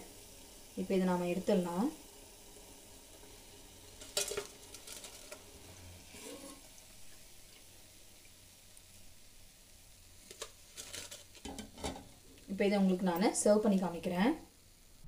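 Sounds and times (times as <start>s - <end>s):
hot oil sizzling: 0.0s - 15.0s
metal ladle clattering: 4.0s - 5.4s.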